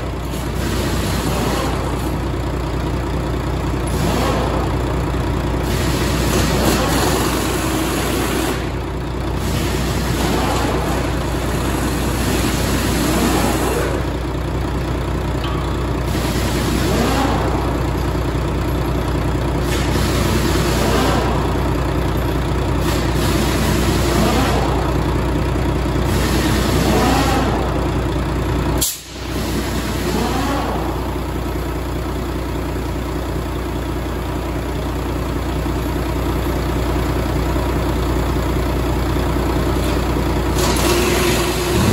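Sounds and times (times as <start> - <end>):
diesel truck engine revving: 0.0 - 41.9.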